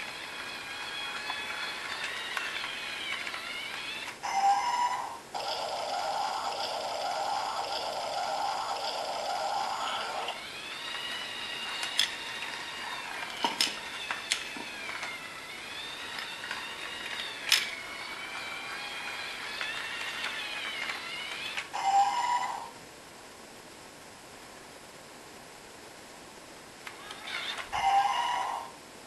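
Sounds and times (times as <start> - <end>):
plastic train clicking on track: 0.0 - 4.0, 10.5 - 21.7
toy train motor whine: 0.0 - 22.7, 26.9 - 28.7.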